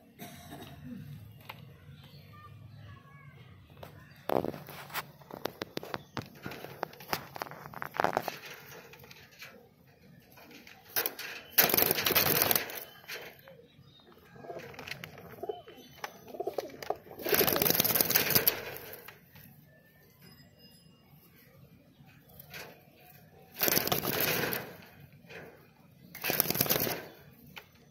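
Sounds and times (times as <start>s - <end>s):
wings flapping: 10.9s - 13.3s, 16.6s - 19.0s, 23.6s - 24.9s, 26.2s - 27.2s
pigeons cooing: 13.5s - 18.8s.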